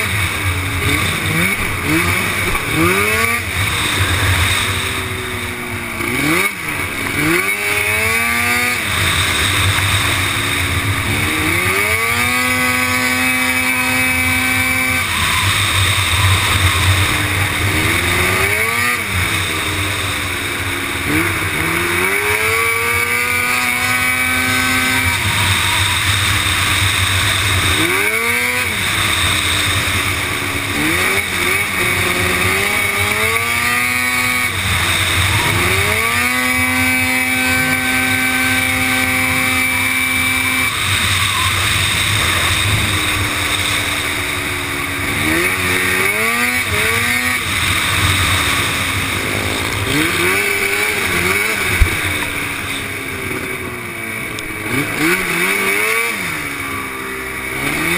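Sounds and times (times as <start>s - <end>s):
quad engine revving: 0.0s - 57.9s
steady rushing noise: 0.0s - 57.9s.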